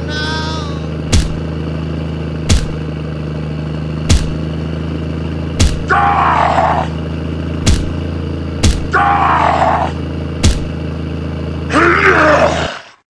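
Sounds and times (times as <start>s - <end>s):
tractor engine humming: 0.0s - 12.5s
heavy thuds: 1.0s - 1.5s, 2.4s - 2.9s, 4.0s - 4.5s, 5.5s - 5.9s, 7.6s - 8.9s, 10.4s - 10.8s.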